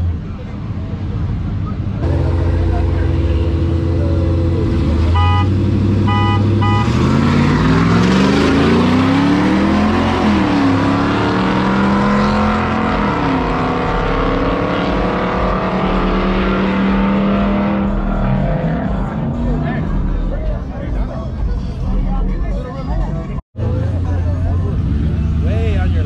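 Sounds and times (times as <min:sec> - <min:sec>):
pickup truck engines idling: 0:00.0 - 0:07.0, 0:17.4 - 0:26.0
trucks accelerating hard: 0:00.0 - 0:26.0.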